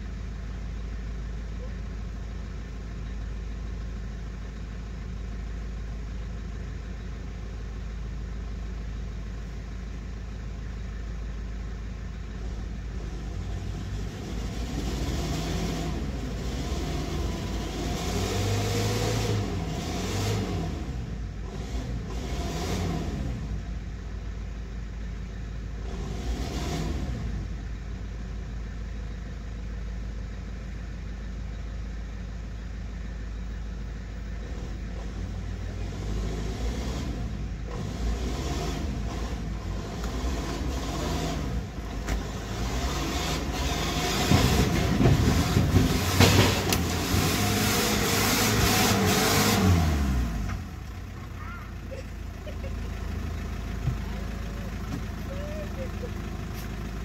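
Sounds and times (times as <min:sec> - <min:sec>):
diesel truck engine revving: 0:12.2 - 0:24.2, 0:25.6 - 0:28.7, 0:32.8 - 0:57.0.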